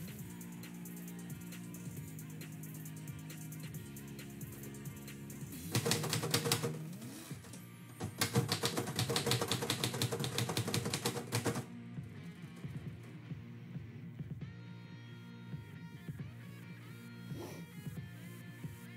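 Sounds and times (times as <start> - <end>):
background music: 0.0 - 18.9
typewriter keystrokes: 5.6 - 6.9, 8.0 - 11.6.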